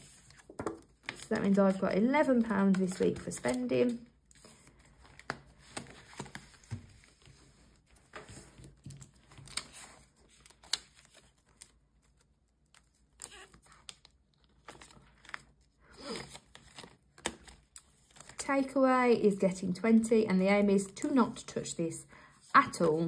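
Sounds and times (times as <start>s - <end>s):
plastic envelopes crinkling: 0.1s - 18.4s.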